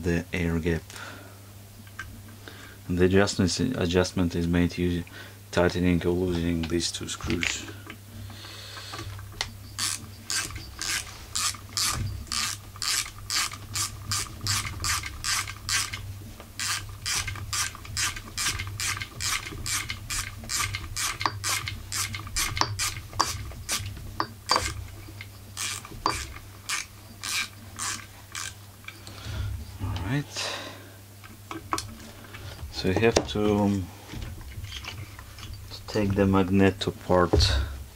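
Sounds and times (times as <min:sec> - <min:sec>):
ratcheting screwdriver clicking: 0:09.4 - 0:16.0, 0:16.6 - 0:23.9, 0:24.5 - 0:29.0.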